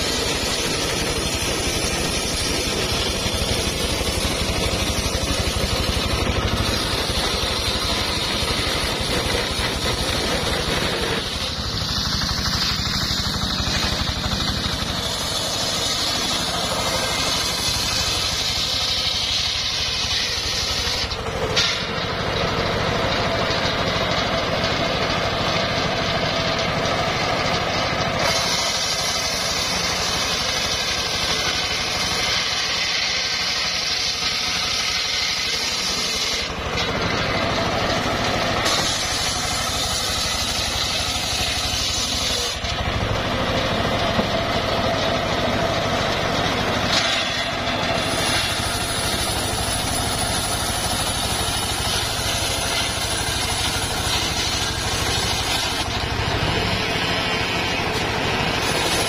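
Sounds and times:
sawmill machine drone: 0.0s - 59.0s
high-pitched saw cutting hiss: 28.2s - 36.5s, 38.6s - 42.7s.

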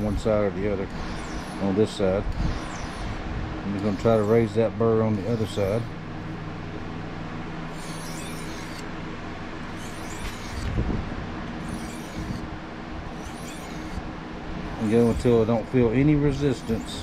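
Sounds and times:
low hum: 0.0s - 17.0s
knife scraping sharpening stone: 7.7s - 8.8s, 9.8s - 10.7s, 11.6s - 12.4s, 13.2s - 14.0s, 14.8s - 15.4s.

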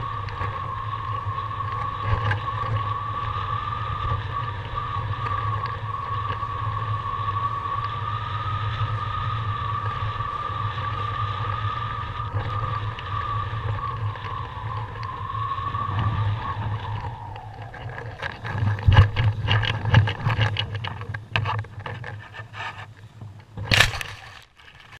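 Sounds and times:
low hum: 0.0s - 24.9s
wind whistle over camera: 0.0s - 24.9s
camera dragging through grass: 12.0s - 24.9s.

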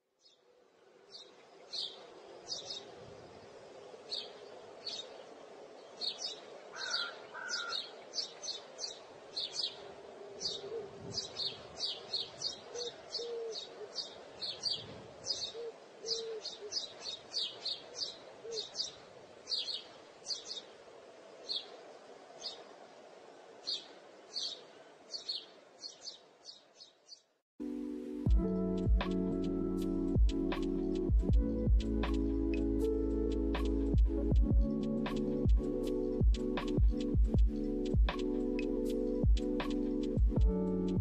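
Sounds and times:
small birds chirping: 0.2s - 27.4s.

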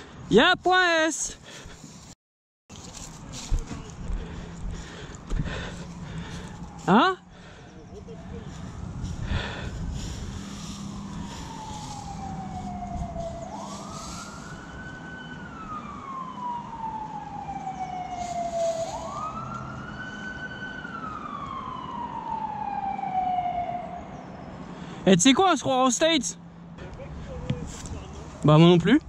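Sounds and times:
siren wailing: 5.4s - 24.6s.

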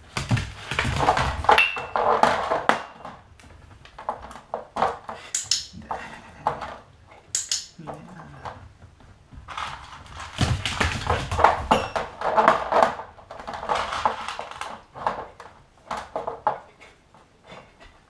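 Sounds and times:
metal jar lids clinking: 1.5s - 2.0s.

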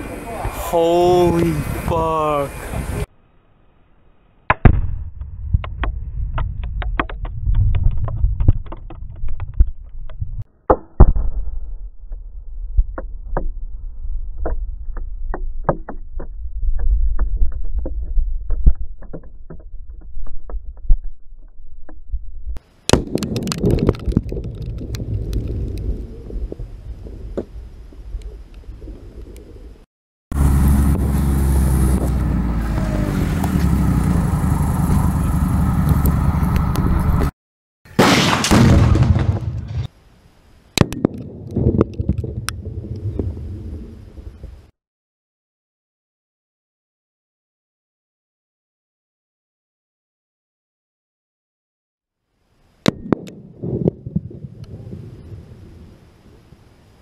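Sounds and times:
fireball crackling and popping: 4.5s - 32.2s, 37.9s - 40.0s, 40.7s - 44.7s, 52.9s - 56.4s
low rumble: 4.7s - 10.4s, 11.1s - 22.6s, 23.7s - 37.3s, 41.3s - 44.7s
loud bang: 37.9s - 39.9s.

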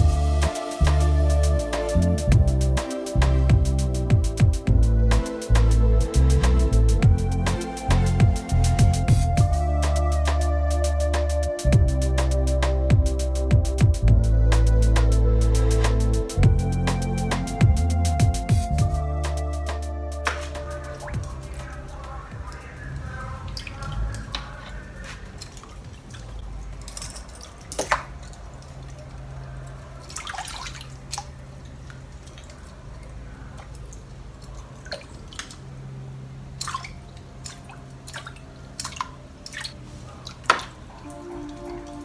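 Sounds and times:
steady low hum: 0.0s - 25.0s
small water splashes and drips: 20.2s - 42.0s.

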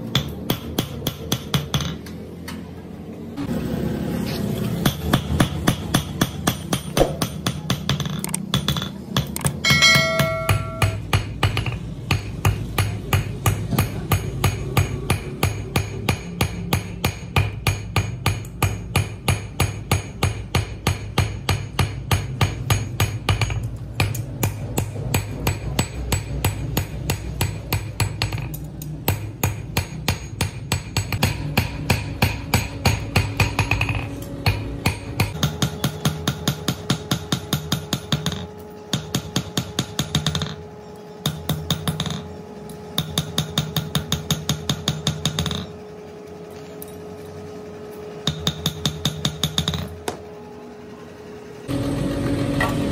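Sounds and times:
hammer ringing on anvil: 9.6s - 28.5s.

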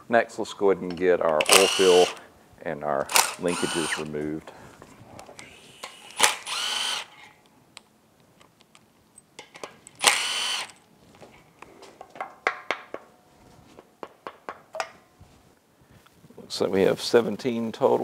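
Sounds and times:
impact driver whirring: 1.4s - 2.2s, 3.1s - 4.1s, 5.4s - 7.2s, 10.0s - 10.8s.

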